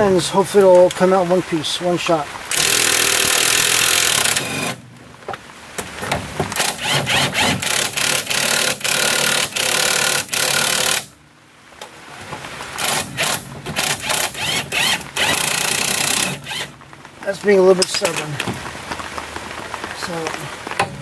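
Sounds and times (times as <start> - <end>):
impact wrench running: 2.5 - 4.8, 6.6 - 11.1, 12.8 - 16.7.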